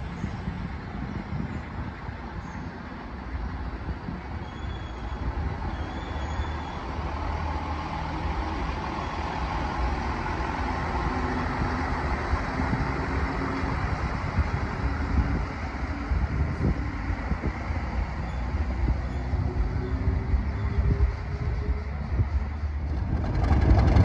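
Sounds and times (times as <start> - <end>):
wheels rumbling on rails: 0.0 - 24.0
diesel engine running: 5.4 - 24.0.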